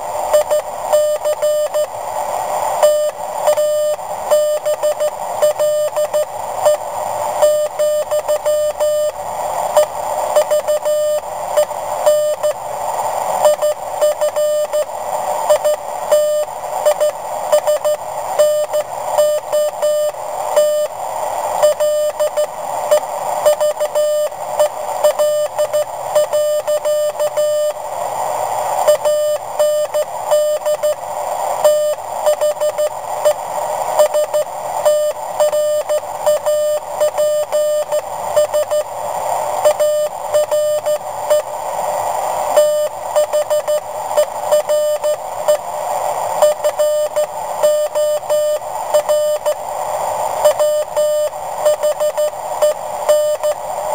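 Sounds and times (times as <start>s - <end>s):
morse code beeping: 2.8s - 6.8s, 34.0s - 38.9s, 50.5s - 53.6s.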